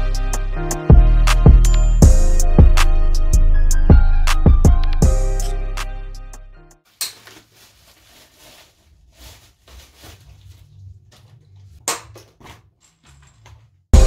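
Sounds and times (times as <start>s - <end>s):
background music: 0.0s - 6.8s
plastic packaging rustling: 6.9s - 13.6s.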